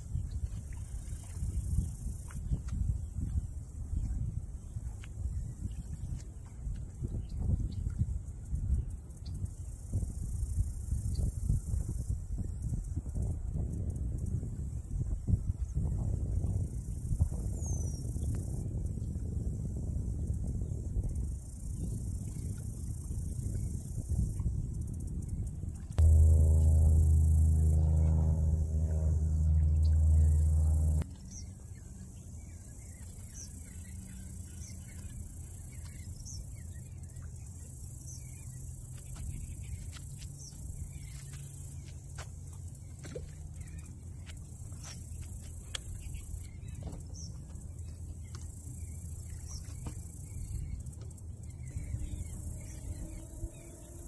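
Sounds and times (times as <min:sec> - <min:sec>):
steady low rumble: 0:25.7 - 0:33.0, 0:50.1 - 0:54.0.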